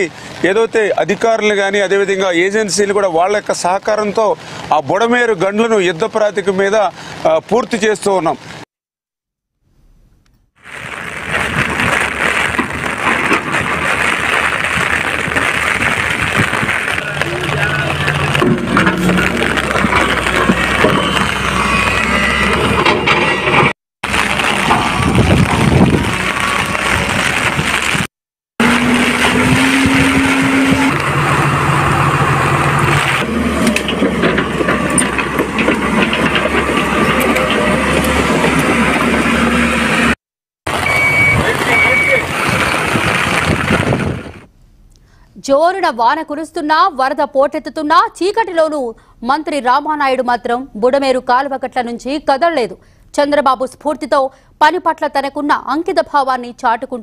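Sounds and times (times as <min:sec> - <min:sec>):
heavy rain pouring: 0:00.0 - 0:08.6, 0:10.6 - 0:44.5
excavator diesel engines droning: 0:16.6 - 0:27.8, 0:28.6 - 0:44.4.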